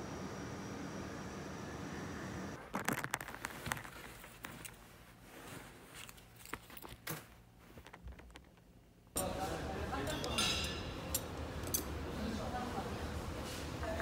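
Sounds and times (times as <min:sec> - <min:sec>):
plastic wrapper crinkling: 0:02.6 - 0:04.8.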